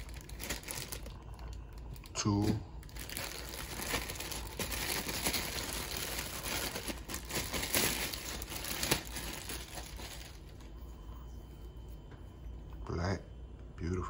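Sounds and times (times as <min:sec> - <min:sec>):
plastic bag crinkling: 0:00.0 - 0:10.8.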